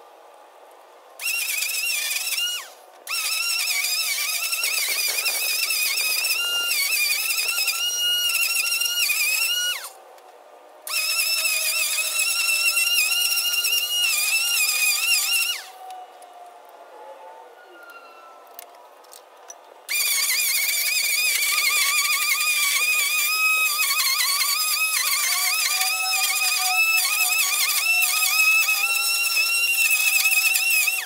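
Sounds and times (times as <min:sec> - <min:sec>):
electric string trimmer whining: 0:01.2 - 0:10.0, 0:10.8 - 0:16.0, 0:19.9 - 0:31.0.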